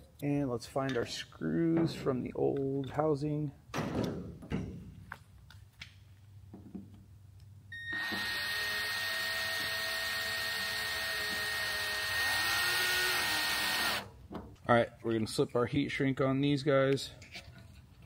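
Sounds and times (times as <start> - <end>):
cordless screwdriver running: 8.0 - 14.1.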